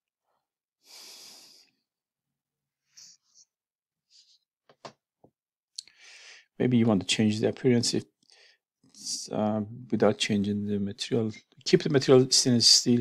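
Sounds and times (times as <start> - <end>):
breath into microphone: 5.9 - 6.5.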